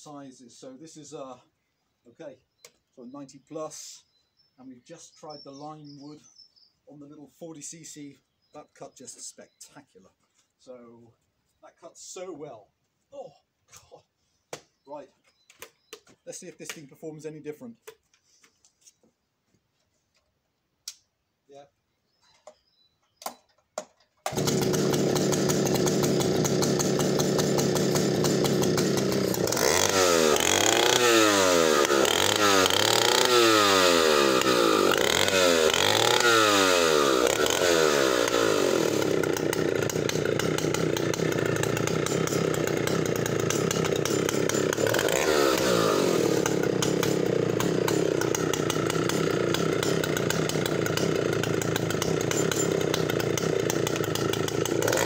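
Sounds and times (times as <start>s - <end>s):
two-stroke chainsaw revving: 24.2s - 55.0s.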